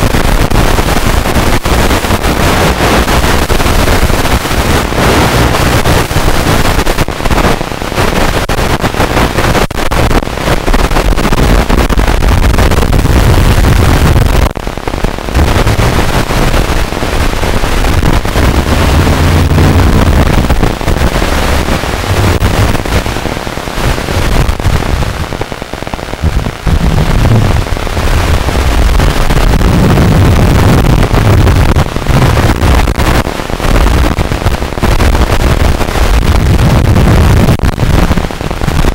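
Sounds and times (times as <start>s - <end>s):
rough crackling noise: 0.0s - 38.9s
faint low hum: 17.9s - 23.5s.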